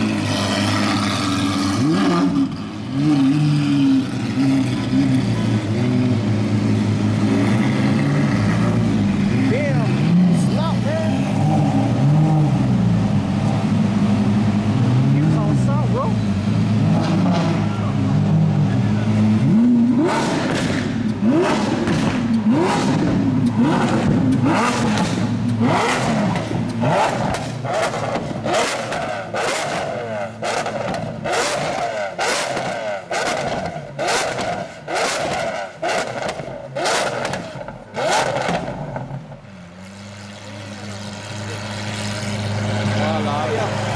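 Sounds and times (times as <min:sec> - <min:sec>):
sports car engine revving: 0:00.0 - 0:43.9
exhaust pops and crackles: 0:20.0 - 0:39.4.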